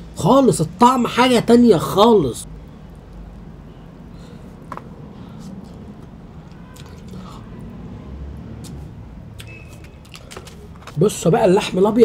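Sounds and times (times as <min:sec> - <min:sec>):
person chewing food: 0:06.7 - 0:07.4.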